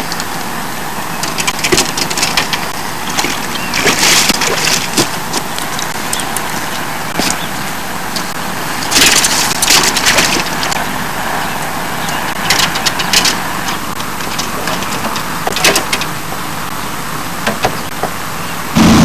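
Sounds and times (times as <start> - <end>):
gear rustling and knocking: 1.2 - 7.5, 8.2 - 10.8.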